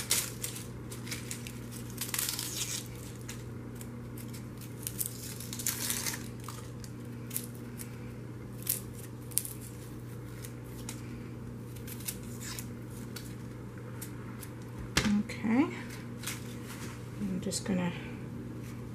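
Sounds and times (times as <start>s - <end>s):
knife scraping onion skin: 0.0s - 6.7s
low background hum: 0.0s - 18.9s.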